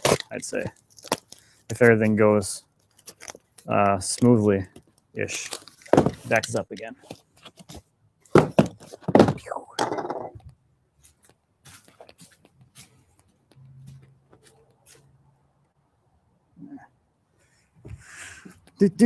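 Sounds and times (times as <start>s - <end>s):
cardboard box thunking on table: 5.9s - 6.3s, 8.3s - 9.4s.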